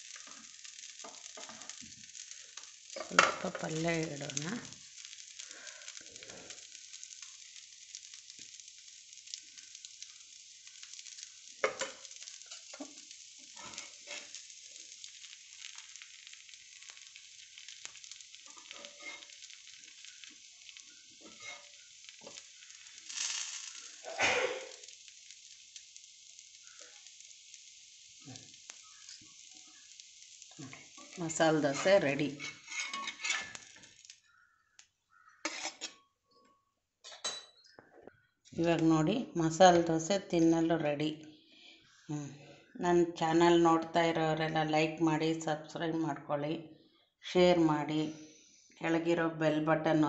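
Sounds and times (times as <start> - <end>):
food sizzling on a hot pan: 0.0 - 36.3, 38.3 - 50.0
spatula scraping and tapping pan: 0.1 - 3.6, 11.6 - 14.4, 17.6 - 22.5, 30.7 - 33.9, 35.4 - 36.0.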